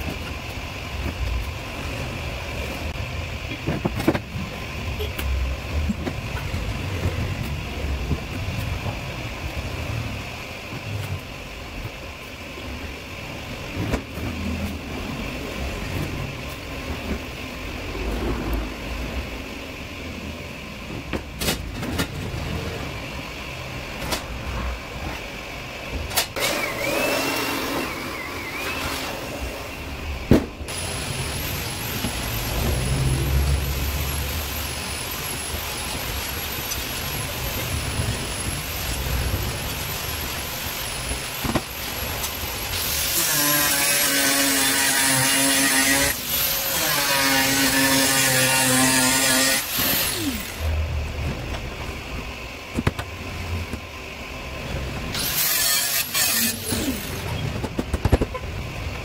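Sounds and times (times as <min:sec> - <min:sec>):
low rumble: 0:13.4 - 0:24.8.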